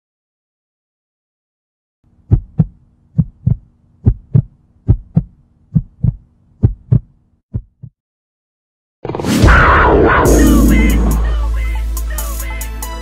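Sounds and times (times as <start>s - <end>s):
heartbeat double thumps: 2.2s - 8.0s.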